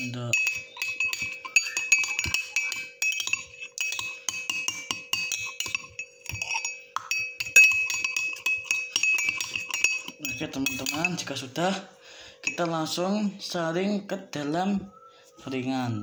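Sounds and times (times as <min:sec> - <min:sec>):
spoon clinking in a glass: 0:00.0 - 0:11.4, 0:12.4 - 0:13.0.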